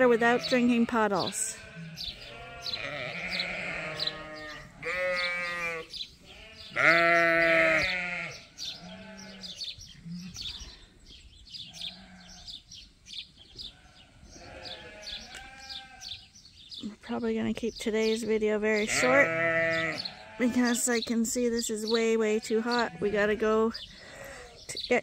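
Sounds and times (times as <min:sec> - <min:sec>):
sheep bleating: 0:00.0 - 0:09.6, 0:11.8 - 0:12.5, 0:13.8 - 0:16.2, 0:18.8 - 0:20.8, 0:22.4 - 0:23.6.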